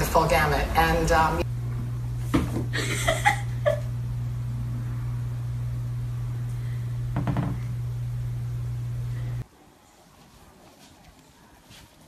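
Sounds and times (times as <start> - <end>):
steady low hum: 0.0 - 9.5.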